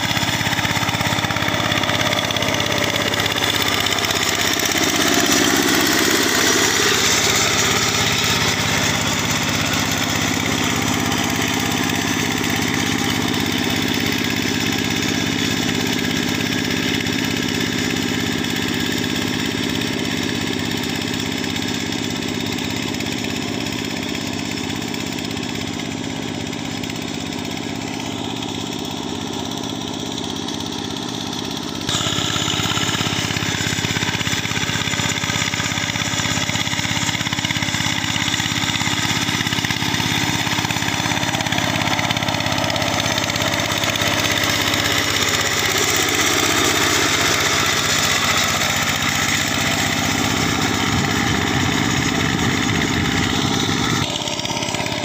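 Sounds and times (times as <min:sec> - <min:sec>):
hand tractor engine running: 0:00.0 - 0:55.0.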